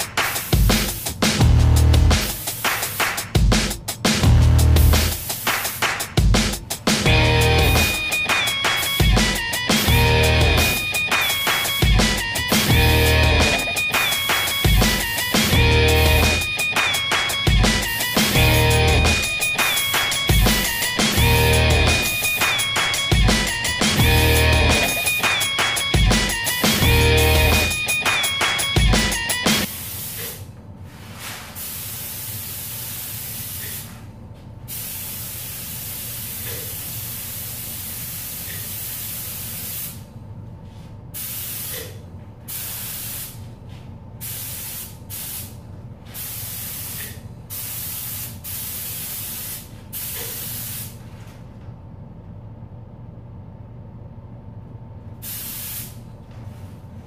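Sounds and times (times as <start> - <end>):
paint spray gun hissing: 31.6 - 33.9, 34.7 - 40.0, 41.2 - 41.8, 44.2 - 45.5, 46.2 - 50.9, 55.2 - 56.0.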